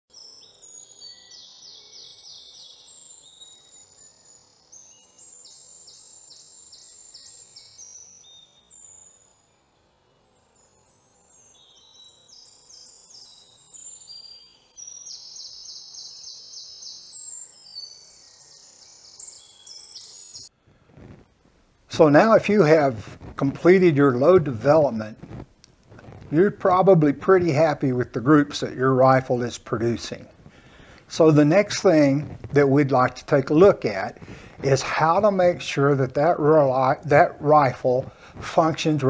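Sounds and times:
songbirds trilling: 10.5 - 20.5, 26.2 - 39.0.

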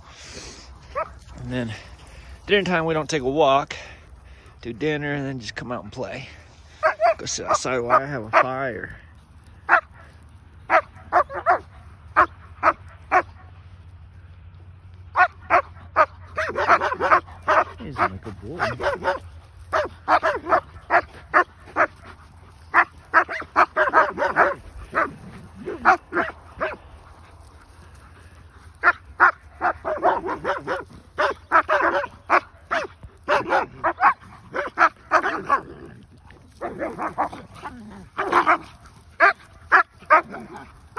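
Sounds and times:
dogs barking in play: 0.0 - 2.4, 6.4 - 40.9.

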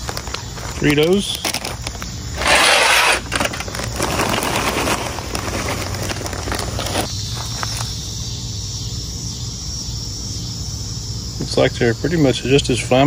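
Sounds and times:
fire crackling: 0.0 - 7.8.

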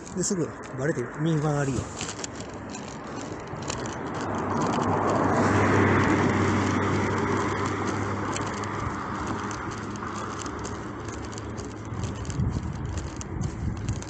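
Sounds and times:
low engine hum: 0.0 - 14.0
vehicle passing by: 3.6 - 12.4.

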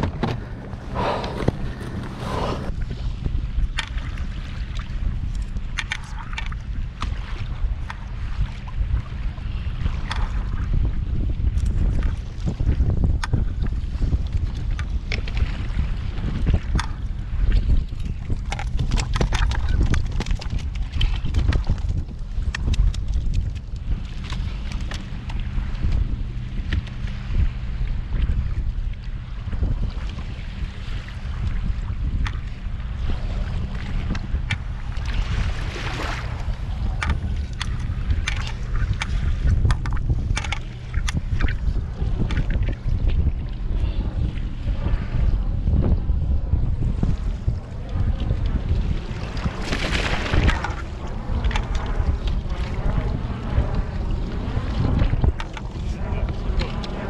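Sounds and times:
water lapping against kayak hull: 0.0 - 57.0
wind buffeting microphone: 0.0 - 57.0
clicks and knocks from handling fish: 3.7 - 8.1, 16.4 - 26.0, 33.8 - 35.2, 36.0 - 43.2, 49.4 - 52.6, 55.0 - 57.0.

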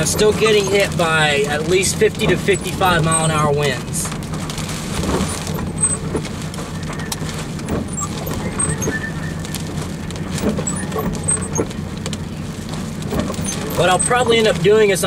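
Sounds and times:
dirt and raindrops ticking on windshield: 0.0 - 15.0
wind buffeting truck: 0.0 - 15.0.

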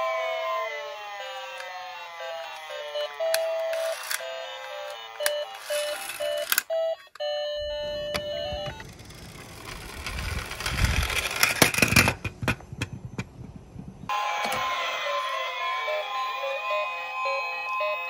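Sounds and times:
toy car wheels rumbling: 0.0 - 14.1
electronic beeping jingle: 2.0 - 8.9
toy car clattering over: 3.0 - 6.7, 8.6 - 12.6.

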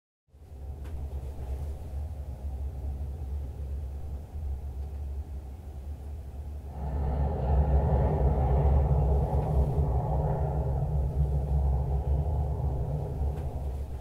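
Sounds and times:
jet aircraft rumble: 0.4 - 14.0.

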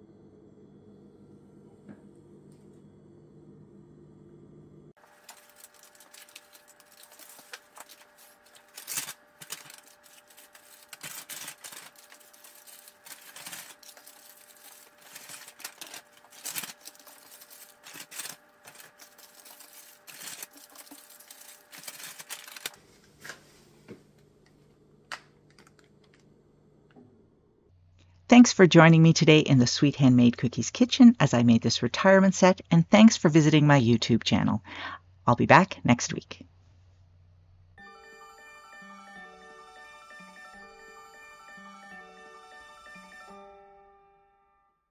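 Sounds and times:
paper bags crinkling: 5.0 - 22.8.

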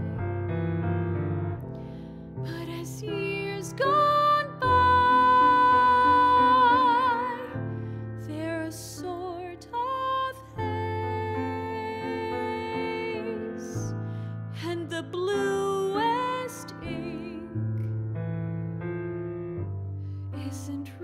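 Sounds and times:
grand piano chords: 0.0 - 21.0
woman singing a slow ballad: 2.4 - 17.9, 20.4 - 21.0.

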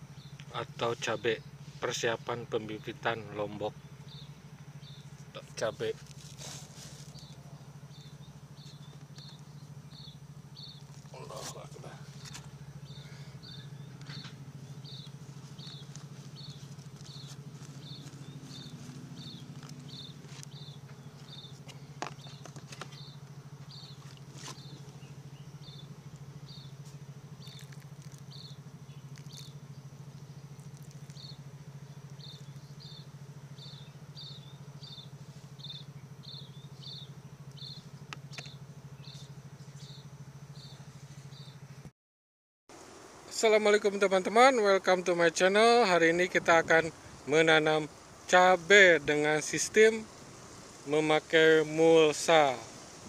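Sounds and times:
steady low hum: 0.0 - 41.9, 42.7 - 53.0.

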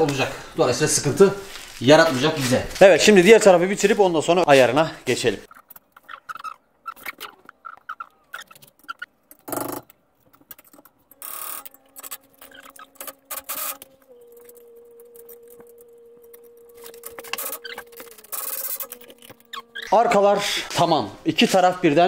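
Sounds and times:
faint steady hum: 9.4 - 22.0.

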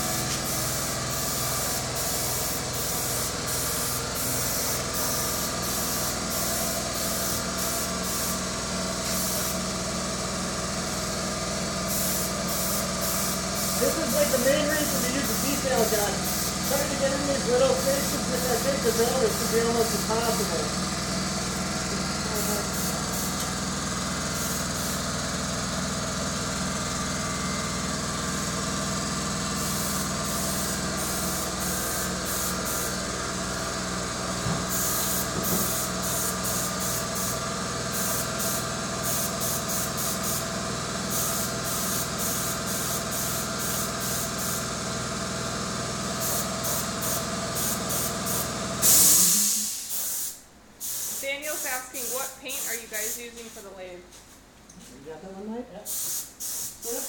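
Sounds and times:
spray gun hissing: 0.0 - 9.7, 11.8 - 25.2, 27.2 - 33.2, 34.7 - 44.7, 46.1 - 53.7, 55.9 - 57.0
low machine hum: 0.0 - 42.3.

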